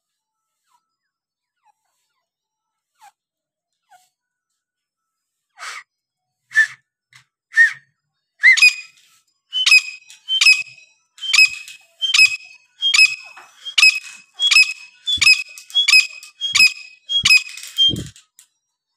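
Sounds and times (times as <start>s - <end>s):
francolin calling shrilly: 8.4s - 8.9s, 9.6s - 18.1s.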